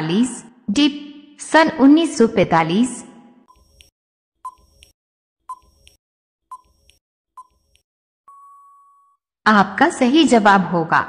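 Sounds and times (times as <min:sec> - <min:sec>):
long steady beep: 0:08.3 - 0:09.2.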